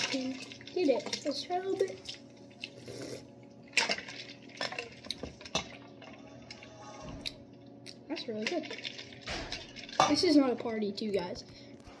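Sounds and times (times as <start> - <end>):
ice and liquid stirring: 8.2 - 10.4.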